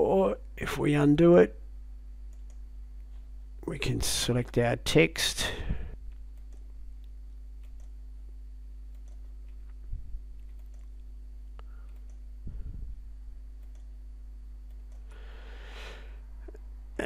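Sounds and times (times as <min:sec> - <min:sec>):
low electrical hum: 0:00.0 - 0:17.0
computer mouse clicks: 0:02.3 - 0:02.6, 0:06.1 - 0:08.0, 0:08.9 - 0:09.8, 0:10.4 - 0:11.1, 0:11.9 - 0:12.3, 0:13.6 - 0:13.9, 0:14.7 - 0:15.1.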